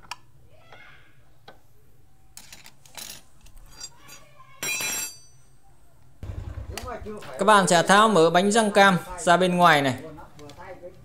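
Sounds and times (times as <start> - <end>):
ringing metallic clatter: 3.7 - 5.6.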